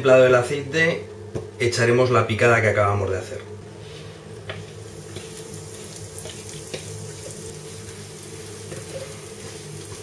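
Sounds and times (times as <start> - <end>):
food sizzling in oil: 4.4 - 10.0.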